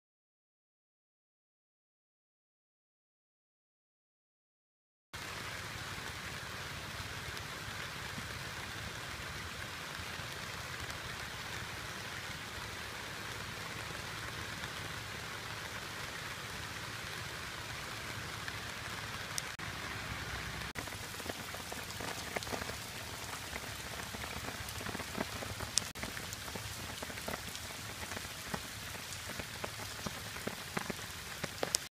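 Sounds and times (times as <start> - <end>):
rain on leaves: 5.2 - 31.9.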